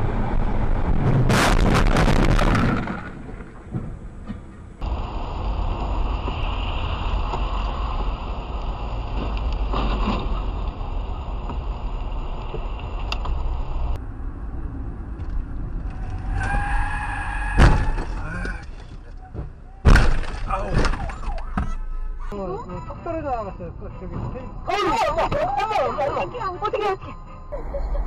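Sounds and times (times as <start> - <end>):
road and tyre noise: 0.0 - 28.0.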